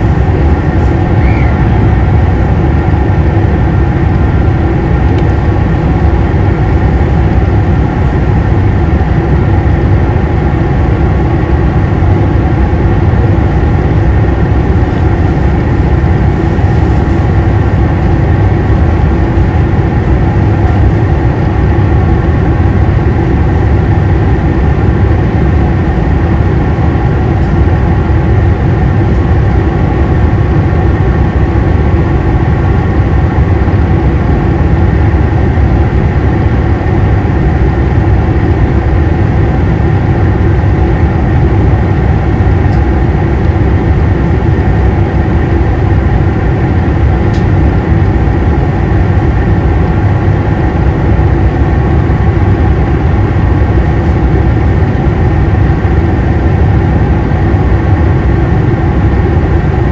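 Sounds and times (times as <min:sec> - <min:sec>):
diesel railcar engine droning: 0:00.0 - 0:59.9.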